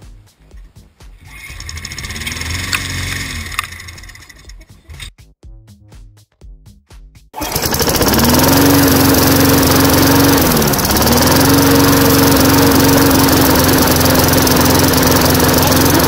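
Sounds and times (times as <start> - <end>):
lawn mower engine running: 1.3 - 4.5, 7.4 - 16.0.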